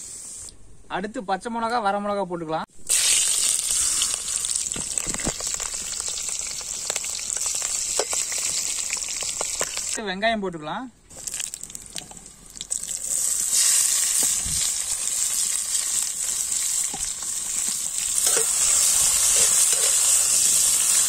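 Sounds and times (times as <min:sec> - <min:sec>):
onions sizzling in hot oil: 0:02.8 - 0:10.0, 0:11.1 - 0:21.0
metal ladle clicking and scraping: 0:16.9 - 0:20.3.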